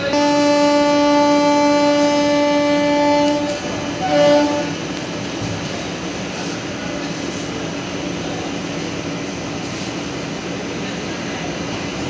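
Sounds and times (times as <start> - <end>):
locomotive horn blasts: 0.0 - 5.1
passenger coaches running: 0.0 - 12.0.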